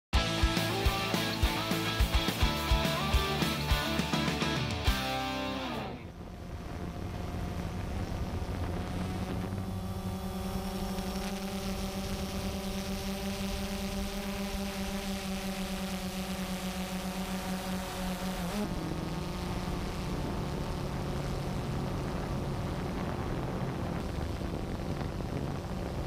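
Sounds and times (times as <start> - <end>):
music: 0.2 - 6.1
drone propellers whirring: 0.2 - 26.0
wind noise: 5.6 - 26.0.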